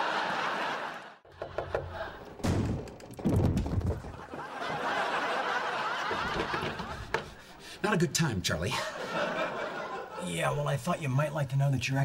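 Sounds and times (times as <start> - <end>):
audience laughter: 0.0 - 2.4, 4.0 - 7.6, 8.7 - 10.5
knocking on wooden door: 1.3 - 2.0.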